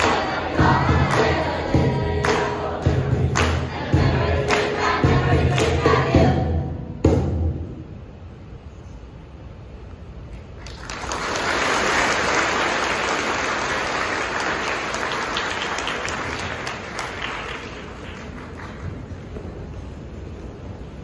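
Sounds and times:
audience applauding: 10.6s - 19.4s.

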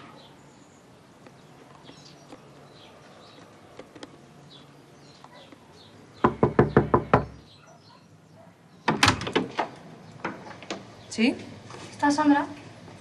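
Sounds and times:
knocking on wooden door: 6.2s - 7.4s.

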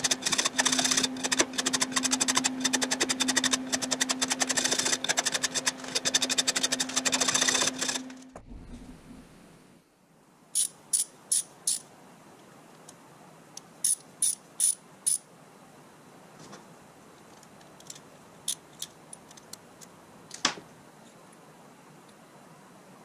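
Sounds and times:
socket wrench ratchet clicking: 10.6s - 11.8s, 13.8s - 15.2s.

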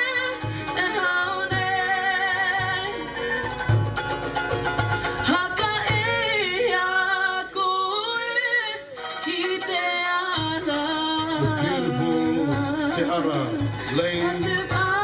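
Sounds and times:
fast-strummed ukuleles: 1.6s - 6.3s, 9.0s - 15.0s
people singing: 11.4s - 15.0s.

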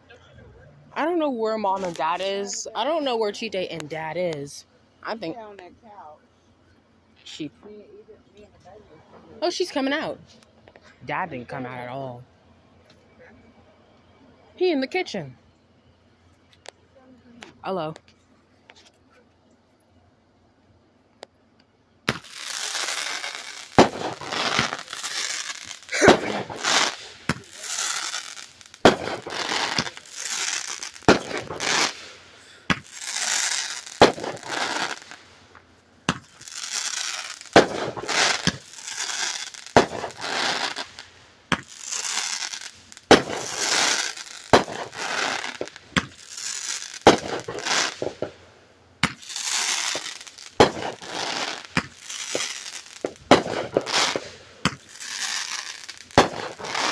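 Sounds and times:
firework pops: 22.1s - 22.4s, 23.8s - 25.1s, 26.0s - 27.6s, 28.7s - 32.0s, 32.7s - 33.0s, 34.0s - 36.5s, 37.4s - 38.7s, 39.7s - 40.2s, 43.0s - 43.8s, 44.5s - 46.3s, 47.0s - 48.4s, 49.0s - 55.5s, 56.1s - 56.9s.

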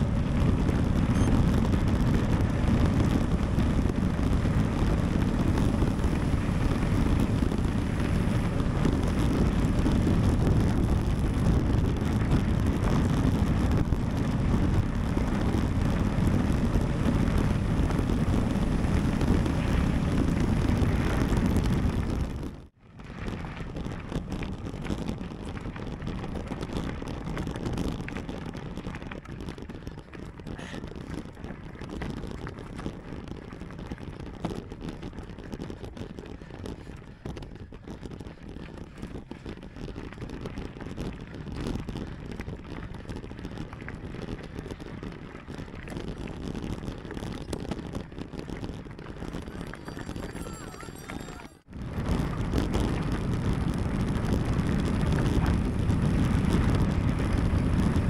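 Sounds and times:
quiet rolling noise: 0.0s - 37.0s, 39.2s - 58.0s
bike rumbling on rough ground: 0.0s - 58.0s
wind rushing over microphone: 0.0s - 58.0s.

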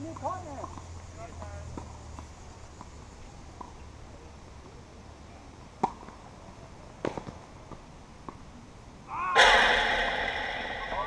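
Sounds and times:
tennis ball bouncing: 5.8s - 6.2s
racket striking tennis ball: 9.4s - 11.0s.

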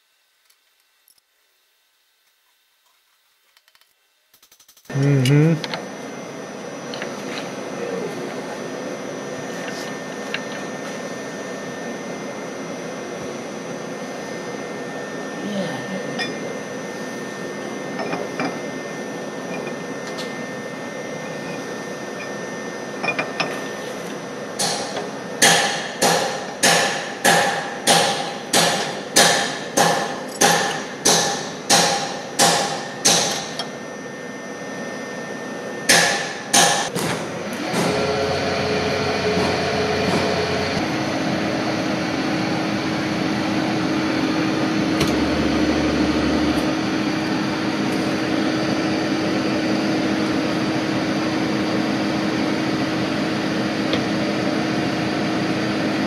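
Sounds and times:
steady shop hum: 4.5s - 56.0s
milling machine spindle running: 37.4s - 56.0s.

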